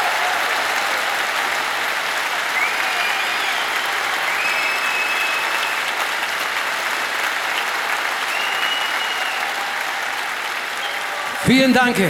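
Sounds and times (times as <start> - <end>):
audience applauding: 0.0 - 12.0
high whistles: 2.6 - 6.0, 8.2 - 9.7, 10.7 - 11.2.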